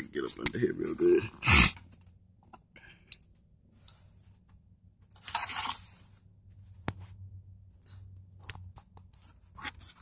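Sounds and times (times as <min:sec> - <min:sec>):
rustling and scraping of wiring: 0:03.8 - 0:10.0.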